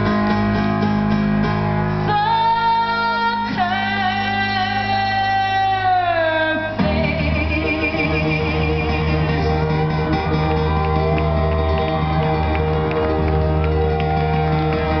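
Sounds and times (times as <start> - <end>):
live piano-led song: 0.0 - 15.0
crowd shouting and cheering: 6.9 - 15.0.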